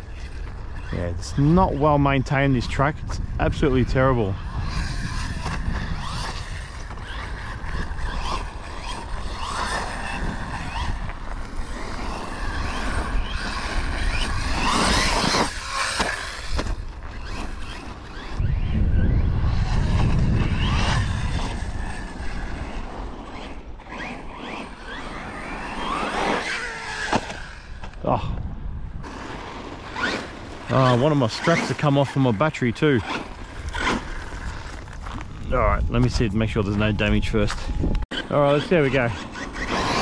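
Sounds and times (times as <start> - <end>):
electric motor whining: 3.0 - 32.3, 33.0 - 40.0.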